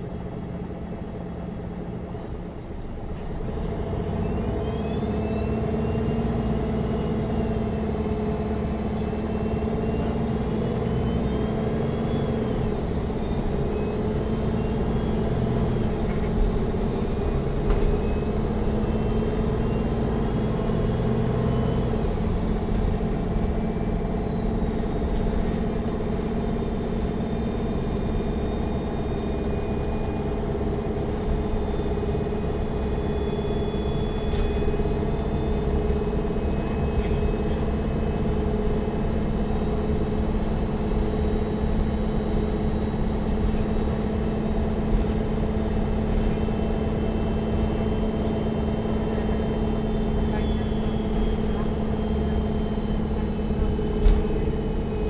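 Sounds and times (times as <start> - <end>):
bus engine running: 0.0 - 55.0.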